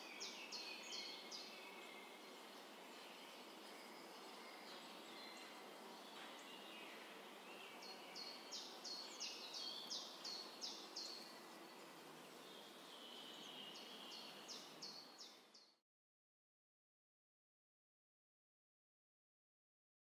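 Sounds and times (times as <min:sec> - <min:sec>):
faint outdoor background noise: 0:00.0 - 0:15.8.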